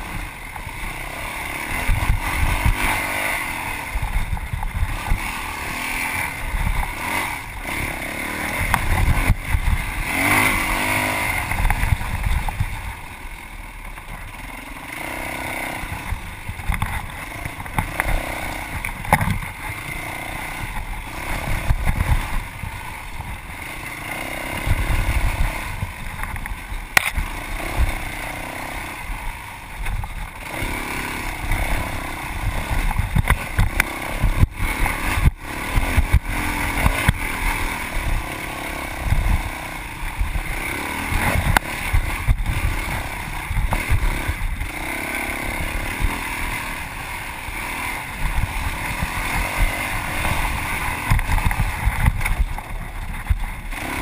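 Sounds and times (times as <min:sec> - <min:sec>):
dirt bike engine revving: 0:00.0 - 0:54.0
knocks from bike on rough ground: 0:08.6 - 0:10.4, 0:15.9 - 0:19.8, 0:26.1 - 0:27.3, 0:29.8 - 0:30.2, 0:32.5 - 0:37.3, 0:48.3 - 0:53.6.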